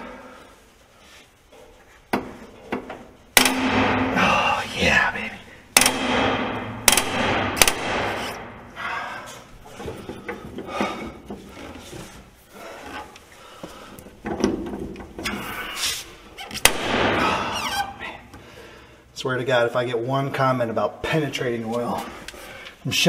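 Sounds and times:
bolt cracking: 2.1 - 4.2, 5.7 - 8.6.

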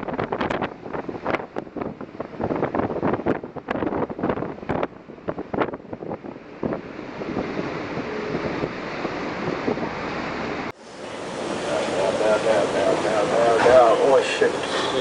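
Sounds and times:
waves breaking over bow: 0.0 - 15.0
wind buffeting microphone: 0.0 - 15.0.

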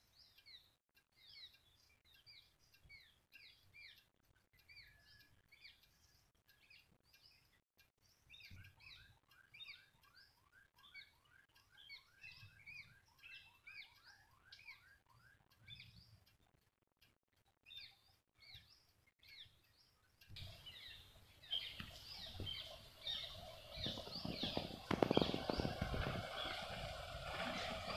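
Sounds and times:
sparrows chirping: 0.0 - 16.6, 17.4 - 27.9.

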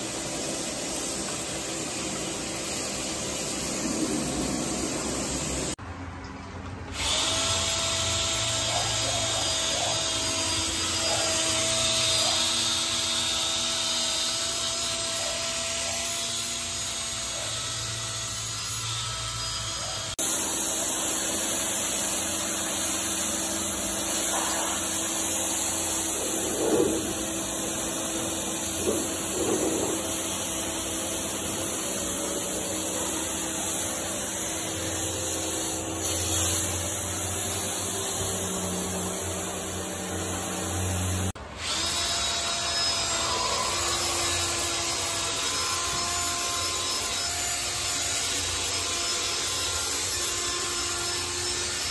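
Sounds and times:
cordless drill motor whine: 6.9 - 51.9
brush rubbing on wet carpet: 26.2 - 27.1.

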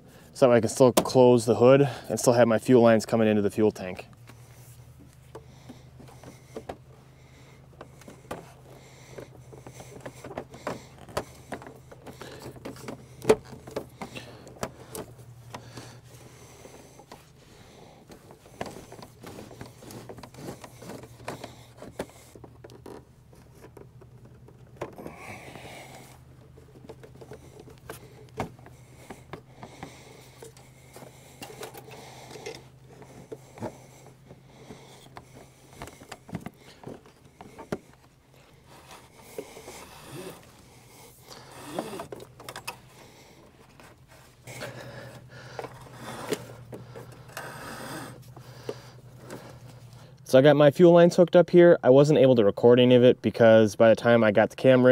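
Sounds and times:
tools clicking tapping and scraping: 25.9 - 38.1, 41.2 - 50.1.

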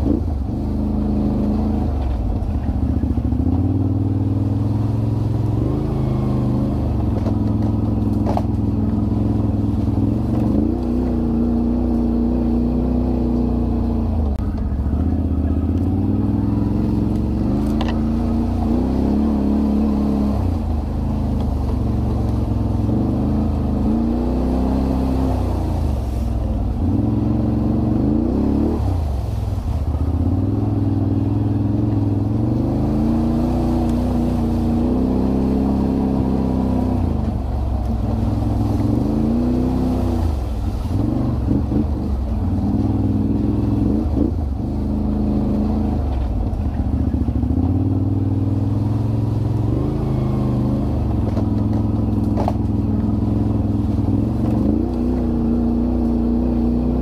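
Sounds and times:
atv engine revving: 0.0 - 57.0
vehicle rattling clicks: 7.0 - 9.0, 17.1 - 18.0, 51.2 - 53.1.

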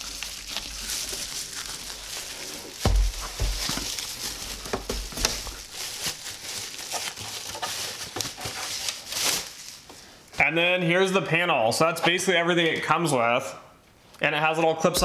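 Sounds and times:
bubble wrap crinkling: 0.0 - 10.3
dull thumps: 2.8 - 5.6.

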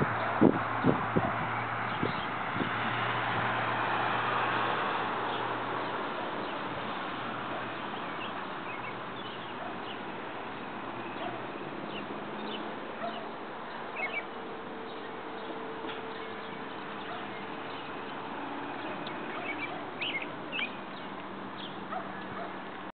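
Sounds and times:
birds chirping: 0.0 - 2.9, 6.3 - 22.7.

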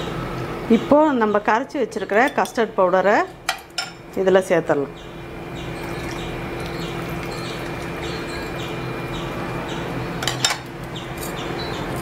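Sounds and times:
liquid pouring into a pot: 5.8 - 8.6.

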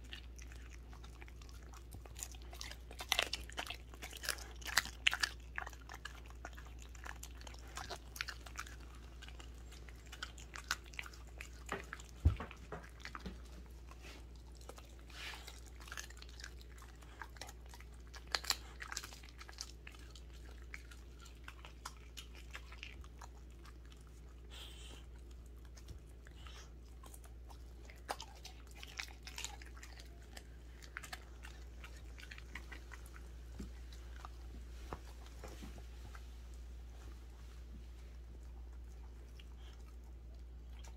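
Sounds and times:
dog chewing raw chicken: 0.0 - 35.6, 38.1 - 40.9.

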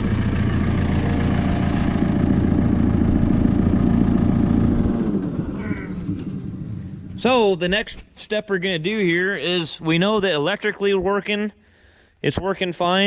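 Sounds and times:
diesel engine idling: 0.0 - 8.0.

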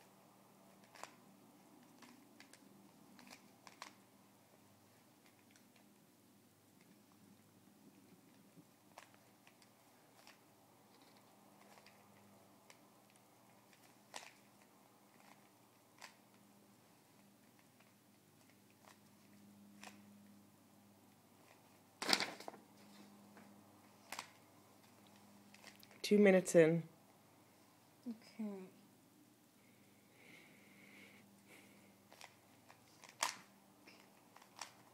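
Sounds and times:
room hum: 0.0 - 34.9
plastic cube clicks: 1.8 - 4.0, 12.7 - 16.3, 32.1 - 34.9.

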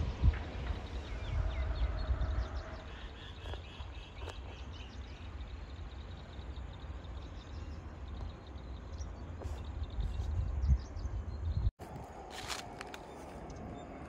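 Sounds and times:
small birds chirping: 0.8 - 11.7.

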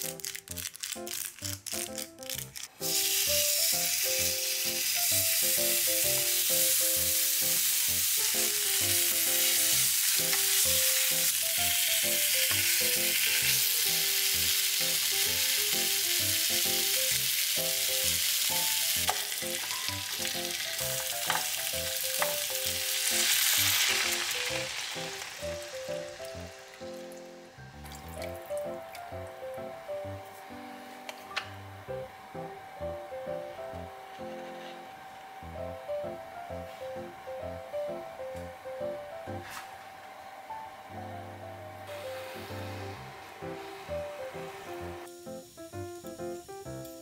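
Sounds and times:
meat sizzling in a frying pan: 0.0 - 27.6, 44.8 - 47.0.

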